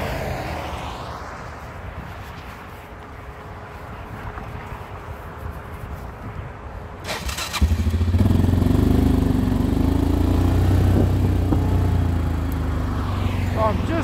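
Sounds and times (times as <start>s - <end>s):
engine starter cranking: 7.1s - 7.8s.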